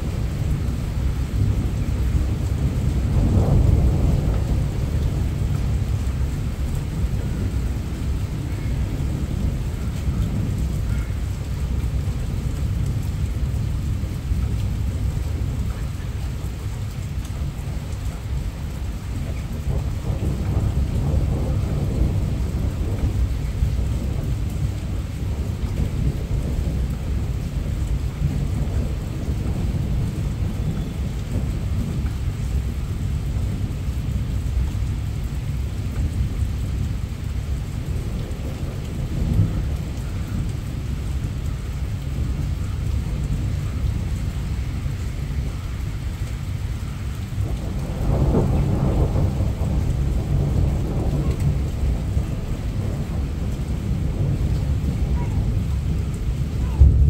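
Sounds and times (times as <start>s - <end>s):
heavy rain hissing: 0.0s - 57.0s
thunder rumbling: 0.0s - 57.0s.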